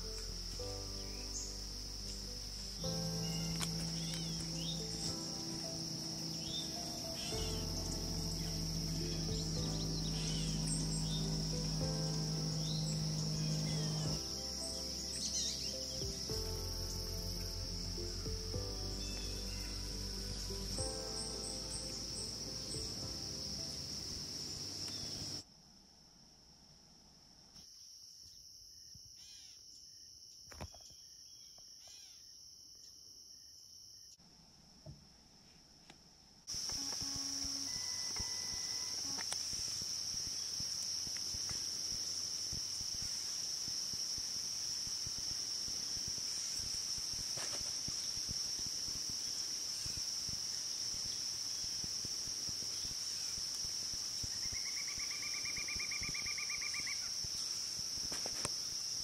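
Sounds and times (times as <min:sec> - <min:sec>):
faint chirps: 0:00.0 - 0:25.4, 0:36.5 - 0:59.0
insects chorus: 0:00.0 - 0:26.8, 0:27.4 - 0:34.2, 0:35.4 - 0:59.0.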